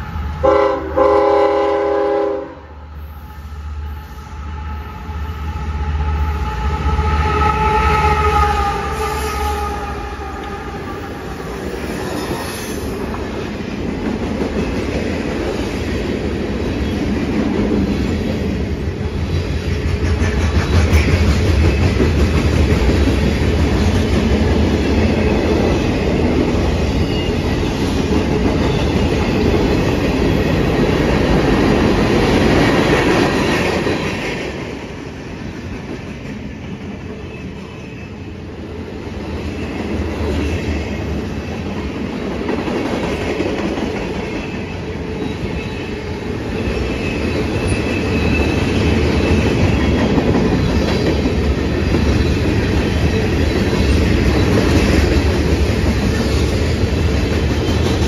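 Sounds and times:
train air horn: 0.4 - 11.2.

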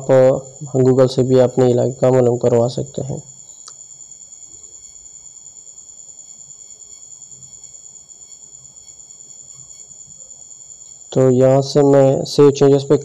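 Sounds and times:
quiet background hiss: 0.0 - 13.0.

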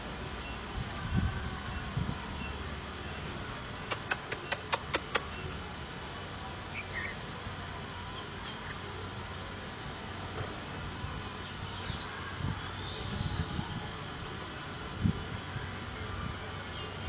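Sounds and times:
sharp clicks: 3.9 - 5.3.

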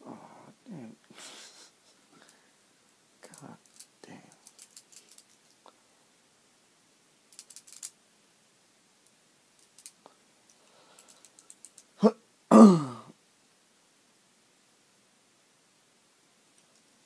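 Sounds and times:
small metal parts clicking: 3.3 - 5.6, 7.3 - 8.0, 9.6 - 11.9
person vocalizing: 12.0 - 13.1.

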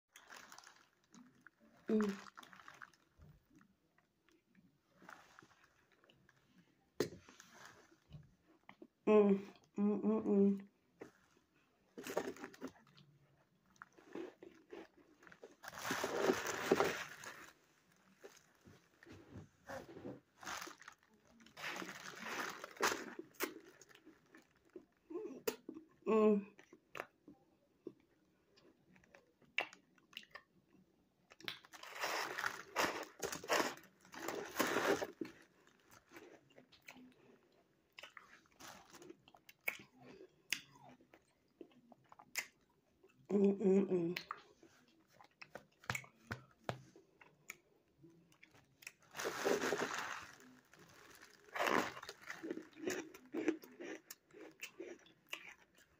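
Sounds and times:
frozen block crunching: 14.7 - 18.5, 20.4 - 24.0, 31.8 - 35.4, 49.1 - 54.0.

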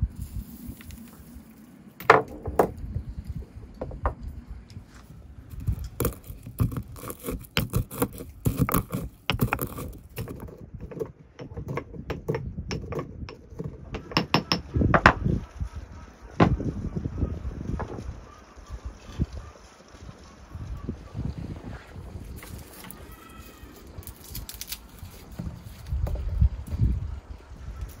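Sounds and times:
stone pestle striking in mortar: 12.1 - 15.2.

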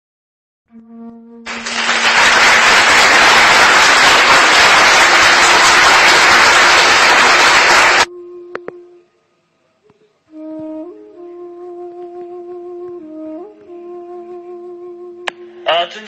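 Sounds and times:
faint flute music: 0.7 - 1.6, 7.8 - 16.0
loud rush of noise: 1.5 - 8.1.

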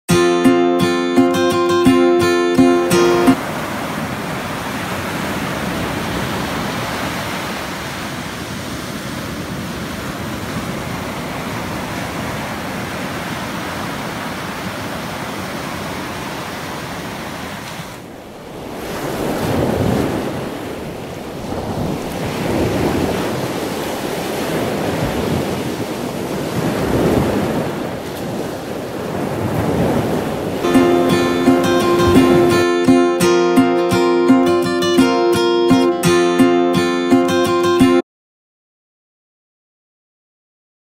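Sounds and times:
ocean waves breaking on beach: 0.2 - 38.0.

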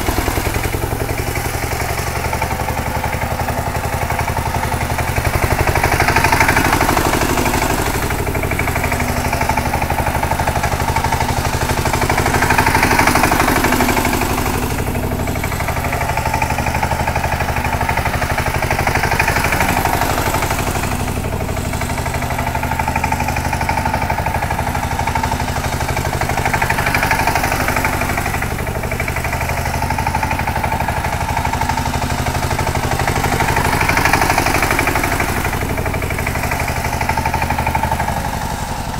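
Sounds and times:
diesel tiller engine chugging: 0.0 - 38.9.

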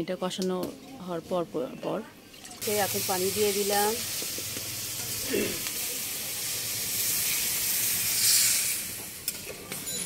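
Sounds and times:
water hissing in a hot pan: 2.6 - 9.3.

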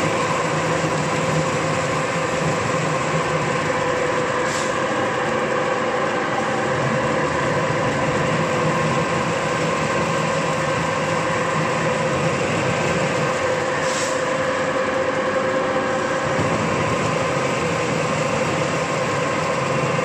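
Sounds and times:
pellet mill humming and whining: 0.0 - 20.0
brief scrape: 4.5 - 4.8, 13.8 - 14.3.

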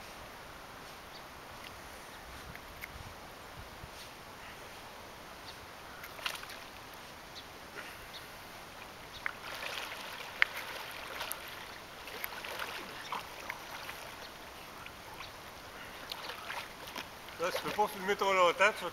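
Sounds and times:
flowing river water: 0.1 - 18.9
puppy splashing in water: 9.3 - 14.4, 15.9 - 18.0.

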